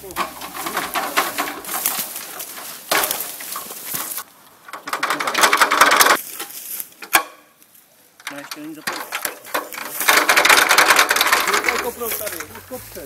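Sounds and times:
rope and fabric rustling: 0.0 - 7.9.

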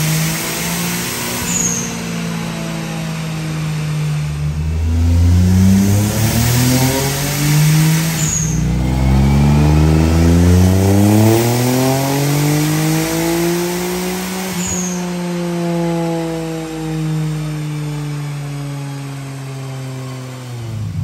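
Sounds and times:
car engine revving: 0.0 - 21.0
high turbo chirp: 1.1 - 2.4, 4.8 - 15.2.

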